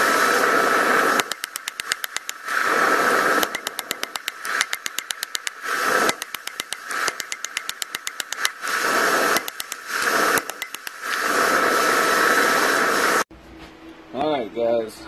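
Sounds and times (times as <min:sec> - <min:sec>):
hammer blows on hot steel: 0:01.2 - 0:11.7.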